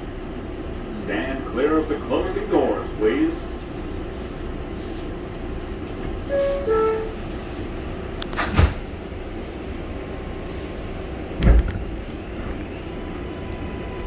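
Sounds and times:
standing train humming: 0:00.0 - 0:14.0
train doors banging shut: 0:08.3 - 0:09.0, 0:11.3 - 0:12.0
heavy thud: 0:11.4 - 0:11.9.

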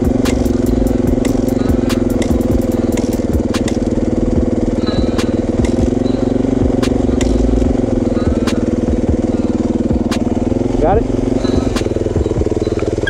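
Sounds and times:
dirt bike engine idling: 0:00.0 - 0:13.0
kick-starter clicks and thump: 0:01.2 - 0:03.9.

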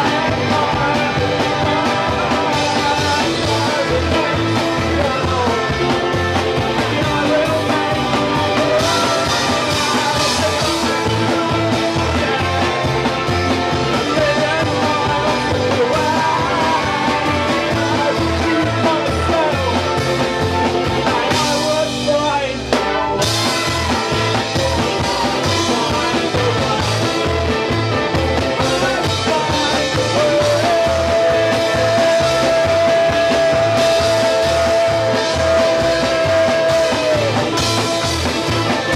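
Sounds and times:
double bass: 0:00.0 - 0:38.9
electric guitar: 0:00.0 - 0:38.9
loud rock music: 0:00.0 - 0:38.9
singer shouting into microphone: 0:06.9 - 0:12.7.

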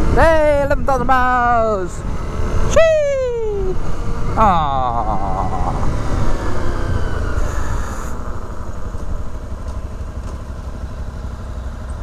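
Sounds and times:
wind on microphone: 0:00.0 - 0:09.6
motorcycle engine at low revs: 0:00.0 - 0:12.0.

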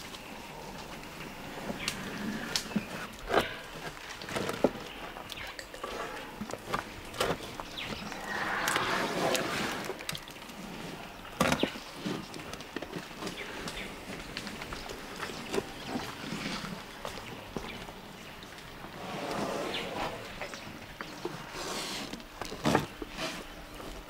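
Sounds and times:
bark scraping rustle: 0:07.3 - 0:10.0, 0:19.0 - 0:20.4.

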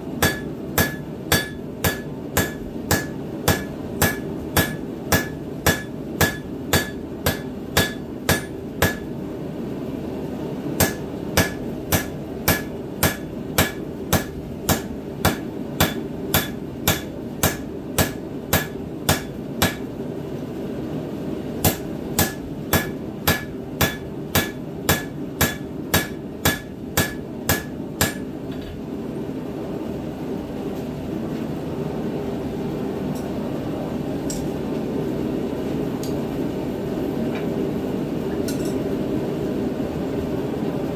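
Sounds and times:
steady low hum: 0:00.0 - 0:40.9
hammer striking steel on anvil: 0:00.2 - 0:09.1, 0:10.8 - 0:19.9, 0:21.6 - 0:28.3.

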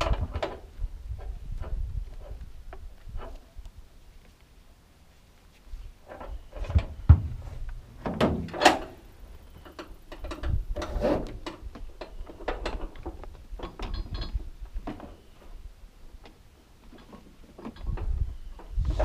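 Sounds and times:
heavy thumps: 0:06.7 - 0:08.6.

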